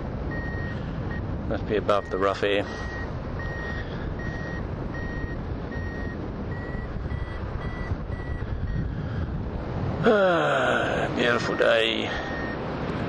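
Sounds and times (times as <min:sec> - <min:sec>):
variometer beeping: 0:00.2 - 0:08.9, 0:11.3 - 0:12.6
wind on microphone: 0:02.7 - 0:10.2.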